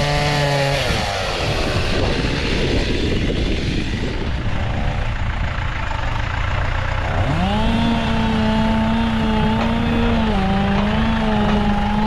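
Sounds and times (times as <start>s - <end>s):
engine running: 0.0s - 12.0s
engine revving up: 6.9s - 12.0s.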